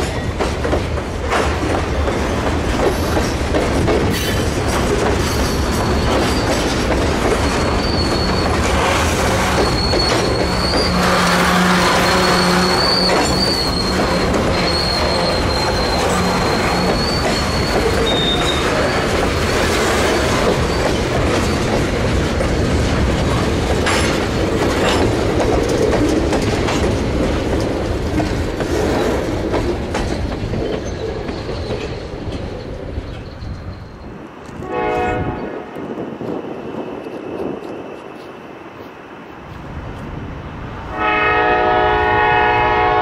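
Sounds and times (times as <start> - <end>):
train wheels rolling on rails: 0.0 - 43.0
high wheel squeal: 5.3 - 21.7, 30.8 - 34.2
locomotive horn blast: 10.8 - 16.8, 34.6 - 35.7, 40.9 - 43.0.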